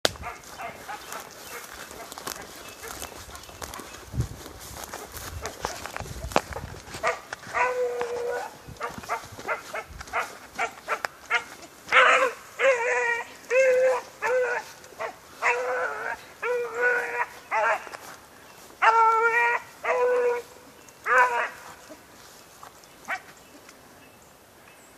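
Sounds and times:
dog barking: 0.2 - 3.0, 7.0 - 17.9, 18.8 - 20.4, 21.1 - 21.6, 23.1 - 23.3
dog howl-like barks: 7.0 - 17.9, 18.8 - 21.7.

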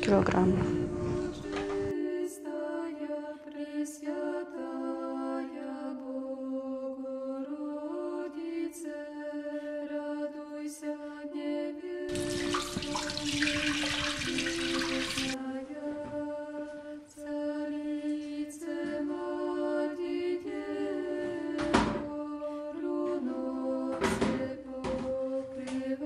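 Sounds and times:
slow chant music: 0.0 - 26.0
water pouring into metal bowl: 12.1 - 15.4.

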